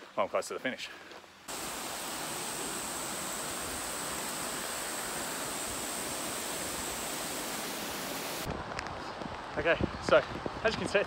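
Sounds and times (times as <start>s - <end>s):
creek water rushing: 1.3s - 8.5s.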